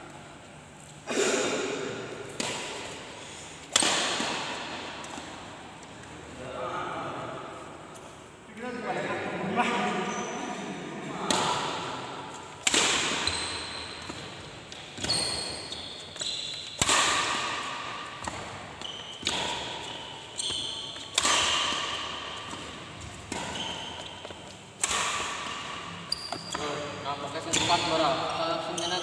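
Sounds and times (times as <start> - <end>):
racket hitting shuttlecock: 1.7 - 5.8, 11.2 - 26.8
shoes squeaking: 9.8 - 10.6, 12.3 - 29.0.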